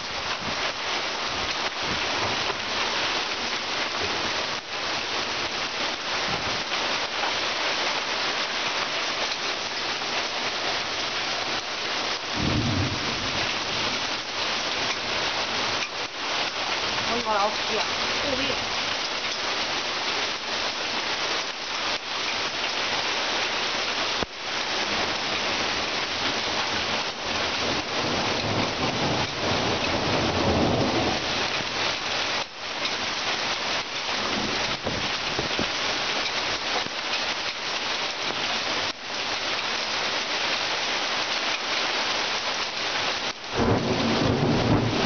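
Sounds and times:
heavy rain pouring: 0.0s - 45.0s
thunder rumbling: 12.3s - 14.2s, 43.5s - 45.0s.

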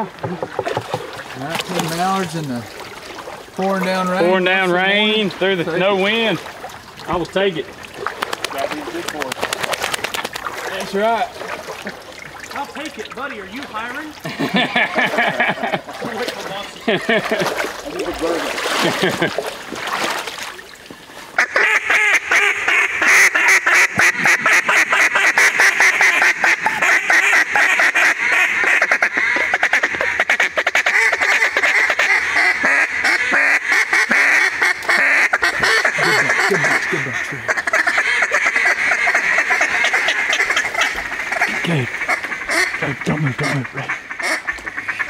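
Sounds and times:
duck calls quacking and chatter: 8.0s - 19.3s, 21.4s - 45.0s.

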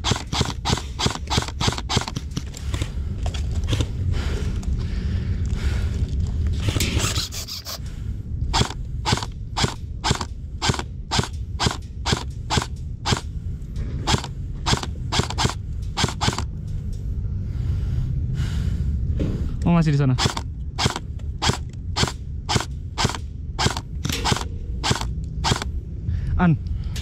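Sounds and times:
airsoft rifle shots: 0.0s - 2.4s, 8.5s - 13.3s, 14.0s - 16.5s, 20.2s - 25.7s.

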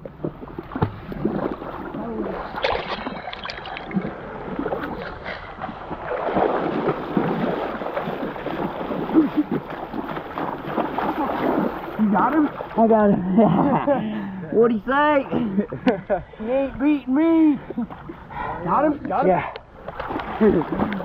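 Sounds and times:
river water splashing: 0.0s - 13.6s, 19.7s - 21.0s.

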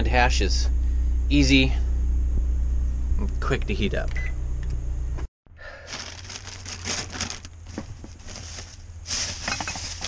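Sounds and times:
steady low hum: 0.0s - 10.0s
packaging rustling and crinkling: 5.8s - 10.0s.

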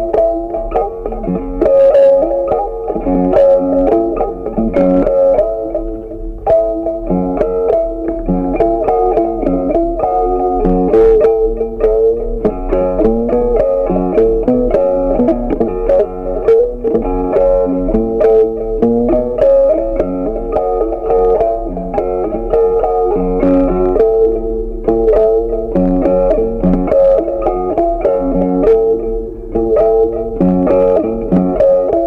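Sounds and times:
plucked guitar melody with bass: 0.0s - 32.0s.

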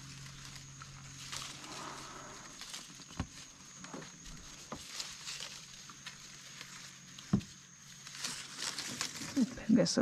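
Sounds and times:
faint high whine: 0.0s - 10.0s
kayak knocking against branches: 7.2s - 7.6s.

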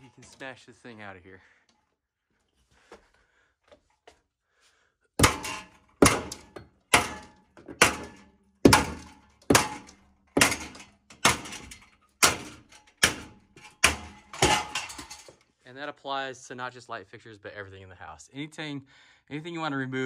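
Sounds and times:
hammer banging on metal light fixture: 5.2s - 15.1s.

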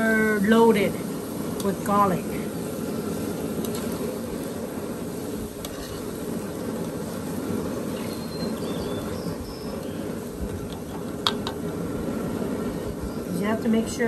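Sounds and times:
garlic sizzling in hot oil: 0.0s - 14.0s.

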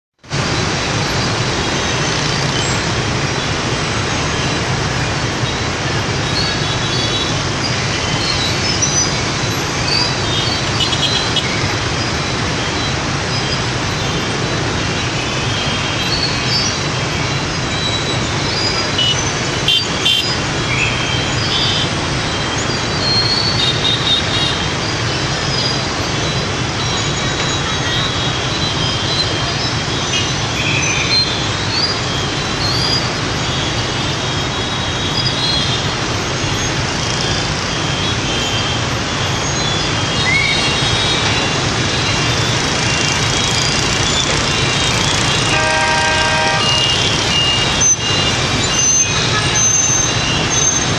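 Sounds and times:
motorbike traffic noise: 0.2s - 50.9s
high-pitched horn beeps: 42.7s - 50.9s.

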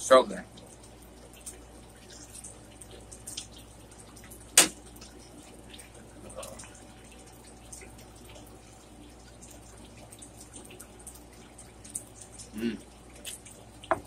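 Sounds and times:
wet chewing and lip-smacking: 9.2s - 13.8s.

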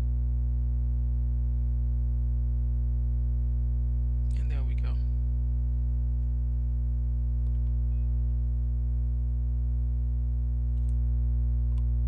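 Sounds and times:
electrical mains hum: 0.0s - 12.0s
faint clicks: 10.7s - 11.0s.

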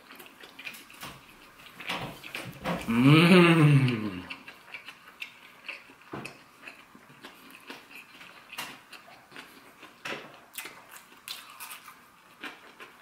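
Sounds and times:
chewing mouth clicks and smacks: 3.9s - 13.0s.

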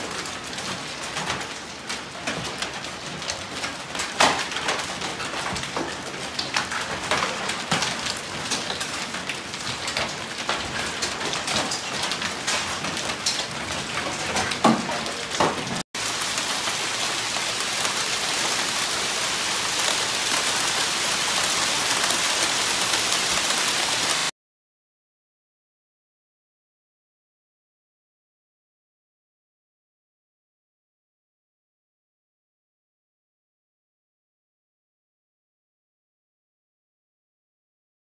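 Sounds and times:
hail pouring onto a shingled roof: 0.0s - 24.3s
hailstones hitting pavement and cars: 0.0s - 24.3s
hiss of falling hail: 15.4s - 24.3s.

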